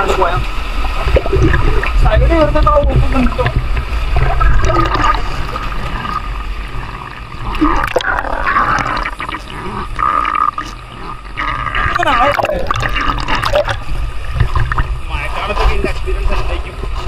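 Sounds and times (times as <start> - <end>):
river water flowing and splashing: 0.0 - 17.0.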